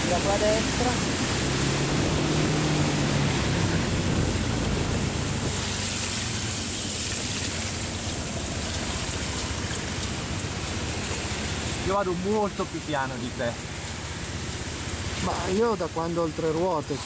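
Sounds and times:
tyres on wet road: 0:00.0 - 0:17.0
wind rushing: 0:00.6 - 0:05.8.

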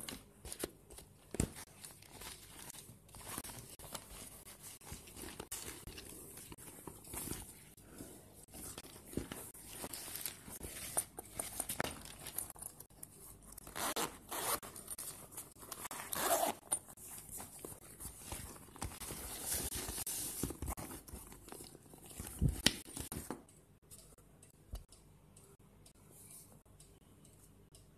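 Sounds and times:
wrapping material rustling: 0:00.0 - 0:23.1
zipper being pulled: 0:13.7 - 0:14.6, 0:15.9 - 0:16.6.

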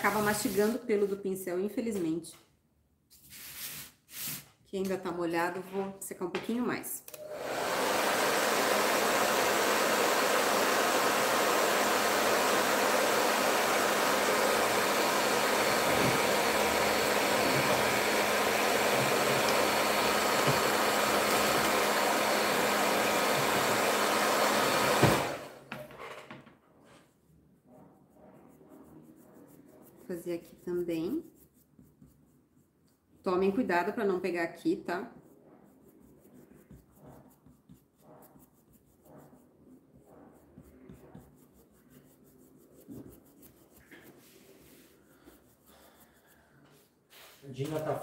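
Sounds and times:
hair dryer blowing: 0:07.1 - 0:25.7.

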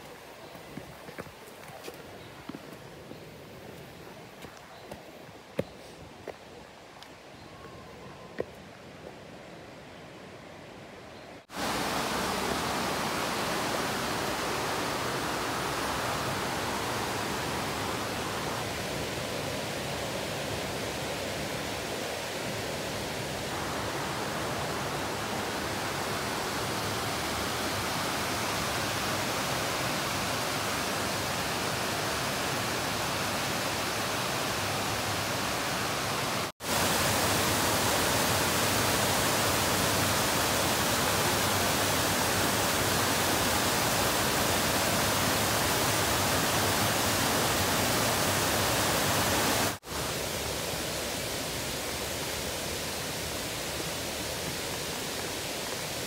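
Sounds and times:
waterfall rushing: 0:11.5 - 0:56.0.

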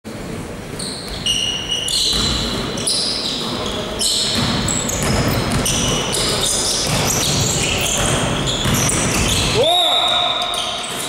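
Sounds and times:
sneakers squeaking on gym floor: 0:00.7 - 0:11.0
basketball bouncing: 0:02.1 - 0:02.7, 0:04.2 - 0:09.6.

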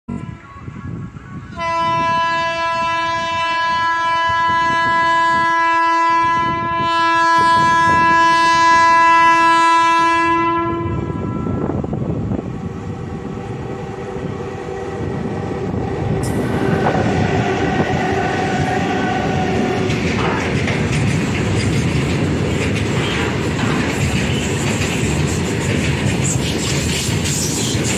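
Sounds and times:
long train horn blast: 0:00.1 - 0:12.1, 0:16.2 - 0:20.4
train wheels clattering on rails: 0:15.8 - 0:27.9.

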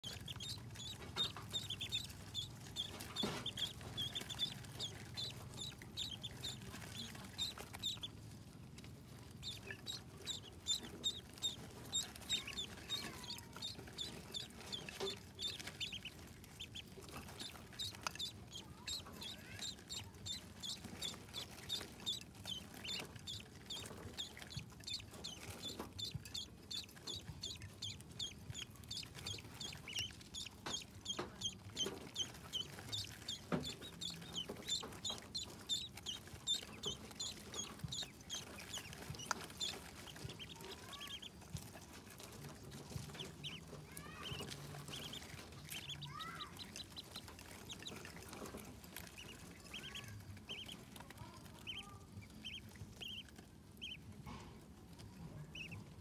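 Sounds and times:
ducklings peeping: 0:00.0 - 0:56.0.

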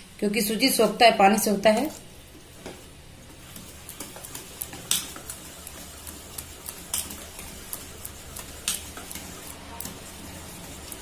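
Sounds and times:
whisk clicking against steel bowl: 0:03.5 - 0:10.0.

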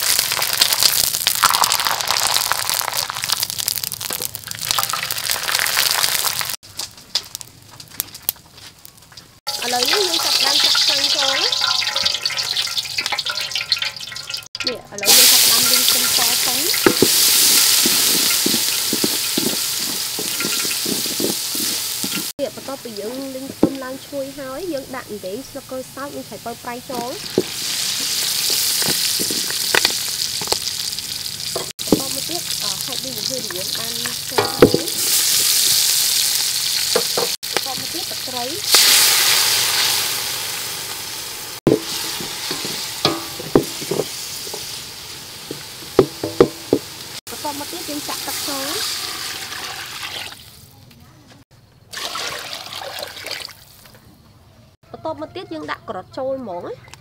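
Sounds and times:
garlic sizzling in hot oil: 0:00.0 - 0:07.6, 0:08.3 - 0:50.7
wooden spoon knocking metal pot: 0:09.5 - 0:22.3, 0:23.4 - 0:24.0, 0:26.8 - 0:30.6, 0:31.6 - 0:32.4, 0:33.3 - 0:35.1, 0:41.7 - 0:44.7, 0:45.5 - 0:46.9
wooden spoon scraping a pot: 0:15.5 - 0:22.3.

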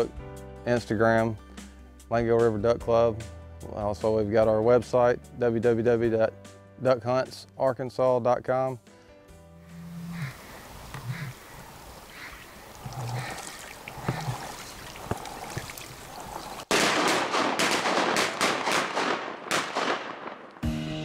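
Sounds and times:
duck quacking: 0:09.8 - 0:15.6
shotgun shots echoing: 0:16.7 - 0:20.6.

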